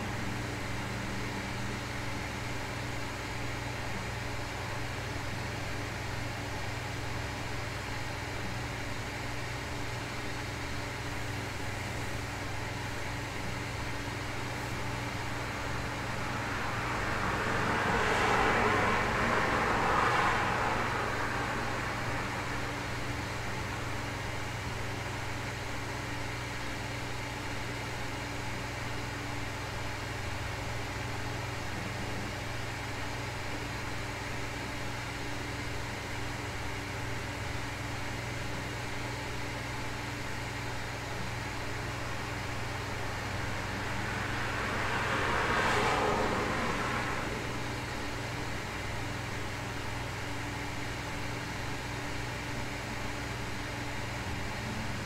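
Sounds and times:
low hum and hiss: 0:00.0 - 0:55.0
car passing by: 0:15.2 - 0:24.0, 0:42.9 - 0:50.1.

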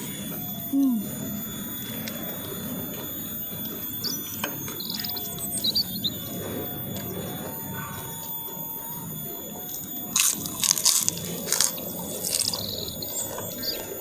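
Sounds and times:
crackers crunching: 0:09.8 - 0:13.9.

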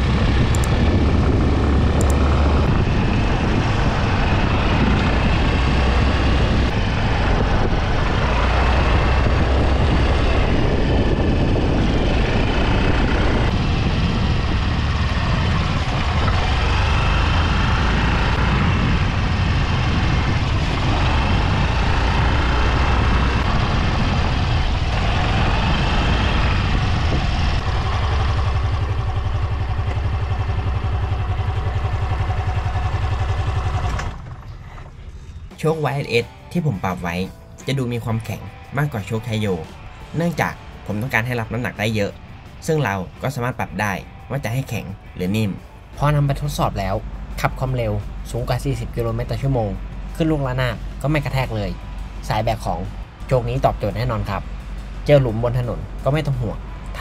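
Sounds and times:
scooter engine running: 0:00.0 - 0:35.5
road and wind rumble: 0:00.0 - 0:57.0.

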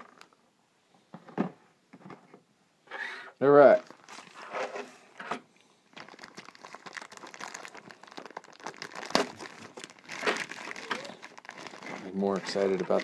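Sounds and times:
plastic wrapping crinkling: 0:03.8 - 0:04.4, 0:05.8 - 0:13.0.

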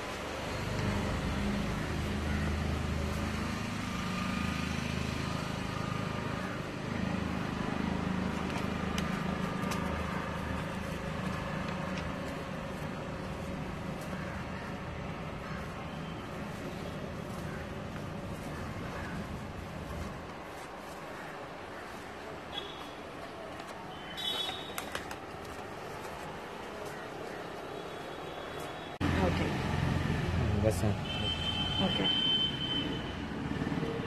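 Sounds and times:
vehicle engine rumble: 0:00.2 - 0:21.8.

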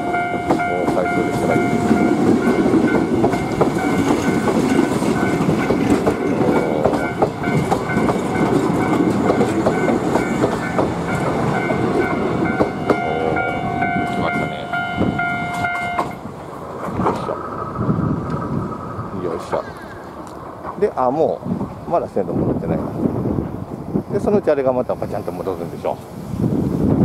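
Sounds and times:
level crossing alarm ringing: 0:00.0 - 0:16.2
wheels clicking over rail joints: 0:00.0 - 0:23.6
electric train running past: 0:00.0 - 0:27.0.

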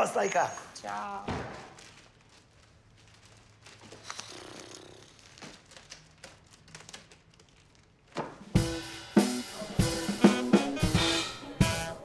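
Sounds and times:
wrapping paper rustling: 0:00.8 - 0:08.4
drum-kit music: 0:08.4 - 0:12.0.

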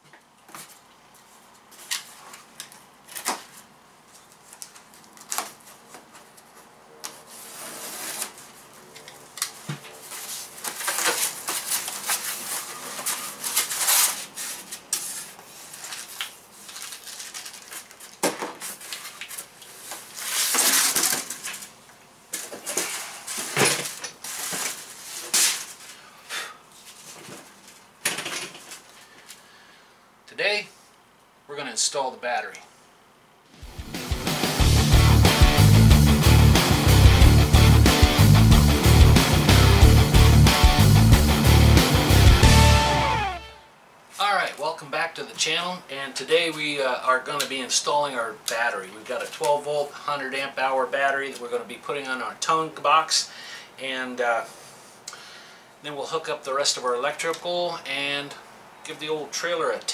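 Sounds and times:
cardboard and foam rustling: 0:03.1 - 0:08.9, 0:09.6 - 0:26.0, 0:26.8 - 0:27.9.

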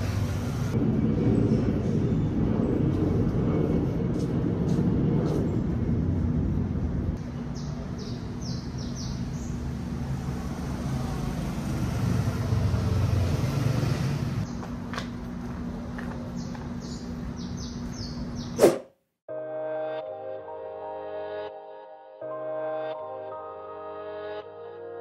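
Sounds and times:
vehicle rumble: 0:00.0 - 0:18.6.

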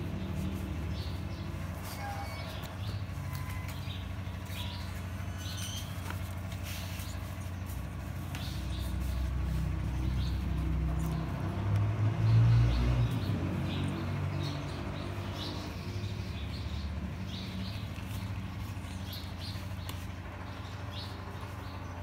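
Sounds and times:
low motor hum: 0:00.0 - 0:22.0
bird chirps: 0:00.3 - 0:06.4.

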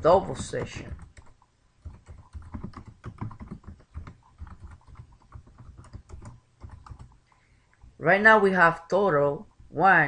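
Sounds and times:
typing on computer keyboard: 0:00.4 - 0:07.2.

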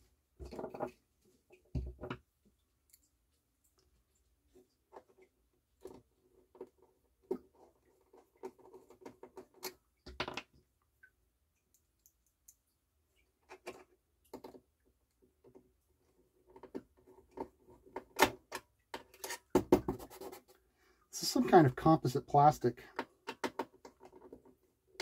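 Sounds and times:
small clicks and taps of parts: 0:11.6 - 0:12.8, 0:22.9 - 0:24.6.

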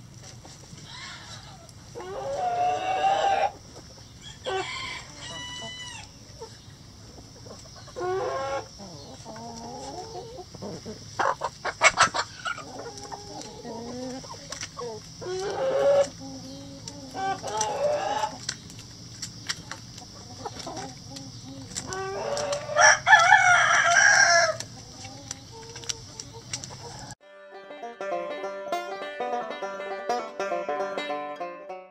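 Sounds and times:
chickens clucking: 0:00.0 - 0:27.2, 0:27.8 - 0:31.8
loud chicken squawks: 0:00.8 - 0:03.6, 0:04.2 - 0:06.2, 0:07.9 - 0:08.7, 0:09.8 - 0:13.8, 0:15.2 - 0:18.4, 0:21.6 - 0:24.6
rooster crowing: 0:00.8 - 0:03.6, 0:04.2 - 0:06.2, 0:17.2 - 0:18.4, 0:21.9 - 0:24.7.

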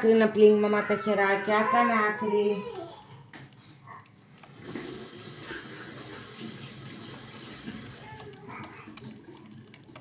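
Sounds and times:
tap water running: 0:02.3 - 0:10.0.

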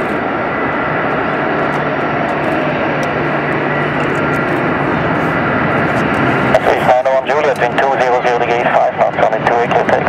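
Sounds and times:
jet engine whine and rumble: 0:00.0 - 0:10.0.

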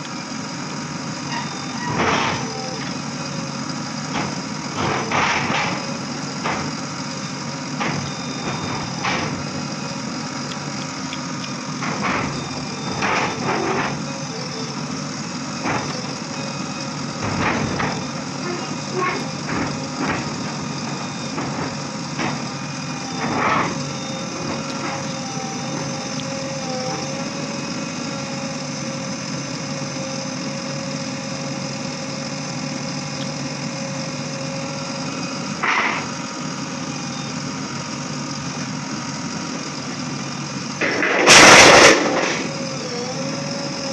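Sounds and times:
diesel engine running: 0:00.0 - 0:43.9
loud harsh burst of noise: 0:40.8 - 0:42.6.

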